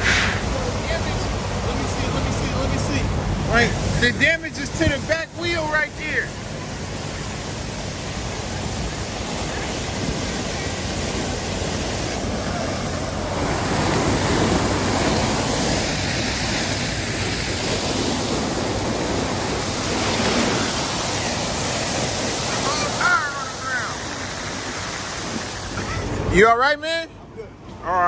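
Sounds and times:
water gushing onto pavement: 0:00.0 - 0:26.4.

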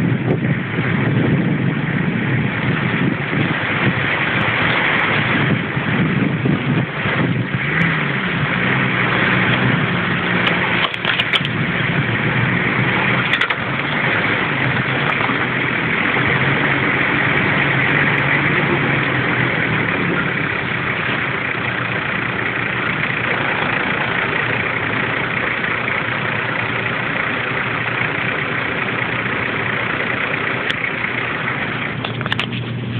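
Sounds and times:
off-road vehicle engine running: 0:00.0 - 0:32.9
knocks and rattles: 0:09.2 - 0:17.5.

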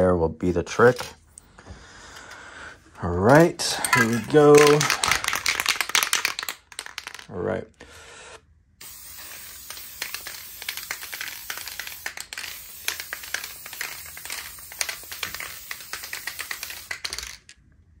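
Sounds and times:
aerosol can spraying hiss: 0:08.8 - 0:17.4.

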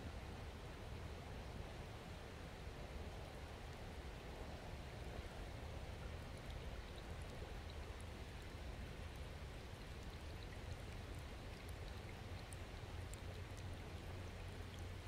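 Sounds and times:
trickles and bubbles ticking: 0:05.9 - 0:15.0.

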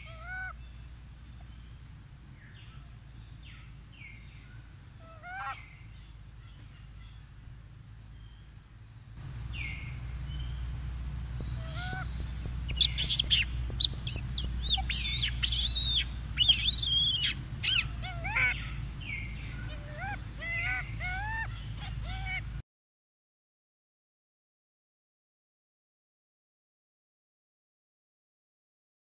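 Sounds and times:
steady low hum: 0:00.0 - 0:22.6
monkeys screaming shrilly: 0:05.0 - 0:05.6, 0:11.6 - 0:22.5
monkey squeals: 0:11.6 - 0:12.1, 0:12.7 - 0:18.8, 0:19.7 - 0:22.5.

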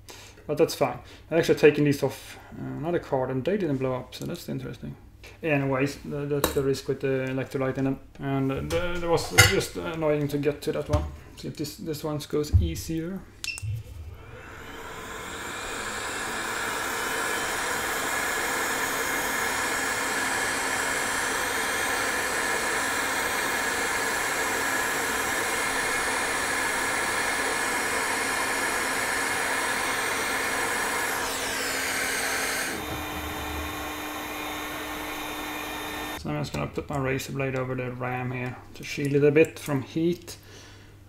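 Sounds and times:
hot air station hissing: 0:14.0 - 0:36.2.

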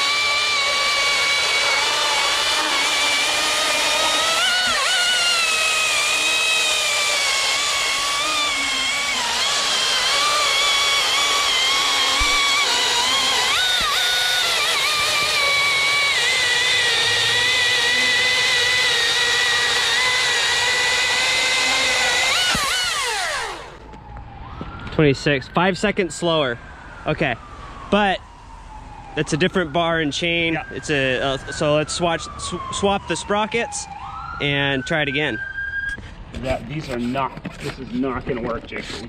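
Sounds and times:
electric chainsaw cutting log: 0:00.0 - 0:23.9.

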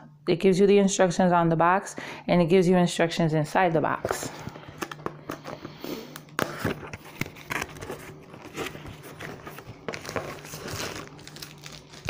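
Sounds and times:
plastic wrap and cardboard crinkling: 0:06.5 - 0:12.0.

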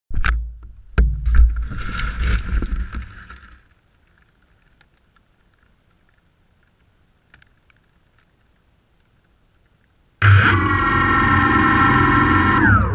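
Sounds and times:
faint ticks: 0:03.6 - 0:10.1.

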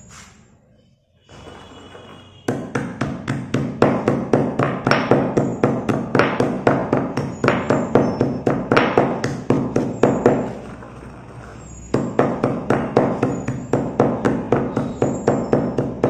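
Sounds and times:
pestle pounding in stone mortar: 0:02.5 - 0:11.0, 0:11.9 - 0:16.0.

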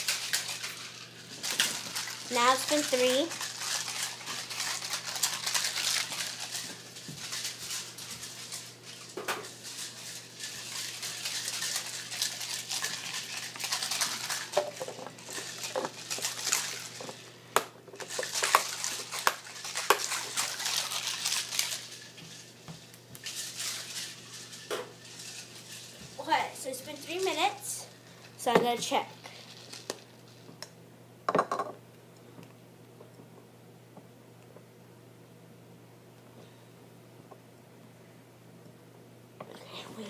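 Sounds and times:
ice rattling in shaken plastic ball: 0:00.0 - 0:17.3, 0:18.0 - 0:30.5.

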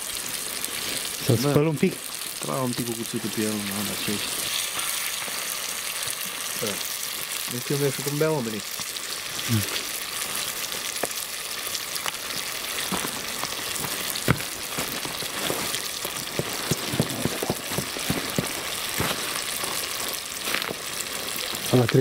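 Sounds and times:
campfire pops and crackles: 0:00.0 - 0:22.0
food sizzling in a pot: 0:00.0 - 0:22.0.

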